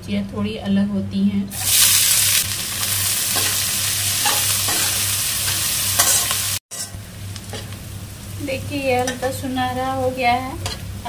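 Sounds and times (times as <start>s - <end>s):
onions sizzling in oil: 1.5s - 11.0s
metal spatula scraping pan: 4.2s - 7.0s.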